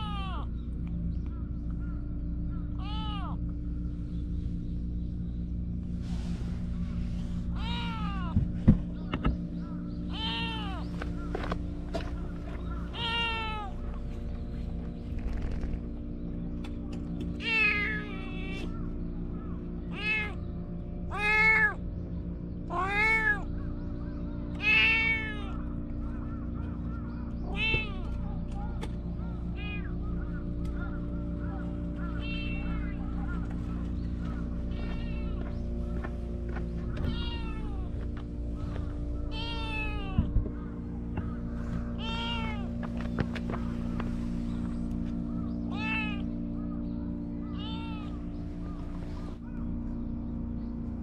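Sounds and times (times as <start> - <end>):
cat meowing: 0.0 - 0.5, 2.8 - 3.4, 7.6 - 8.4, 10.1 - 10.8, 12.9 - 13.8, 17.4 - 18.7, 19.9 - 20.4, 21.1 - 21.8, 22.7 - 23.5, 24.6 - 25.6, 27.5 - 28.1, 29.6 - 29.9, 32.0 - 33.4, 34.7 - 35.4, 37.0 - 38.0, 39.3 - 40.4, 42.0 - 42.7, 45.7 - 46.3, 47.5 - 48.1
steady low hum: 0.0 - 51.0.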